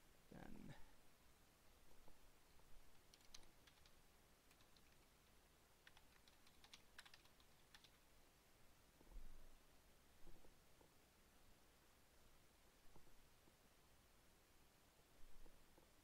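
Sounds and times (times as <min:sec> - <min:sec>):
typing on computer keyboard: 0:02.9 - 0:08.0.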